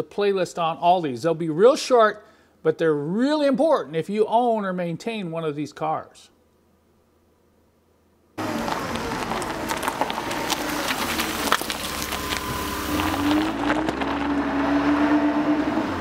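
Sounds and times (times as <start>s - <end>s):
car engine revving: 8.4s - 16.0s.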